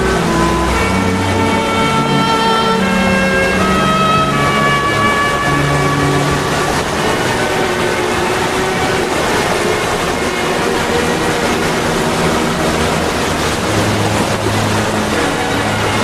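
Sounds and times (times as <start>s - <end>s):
waterfall roaring: 0.0s - 16.0s.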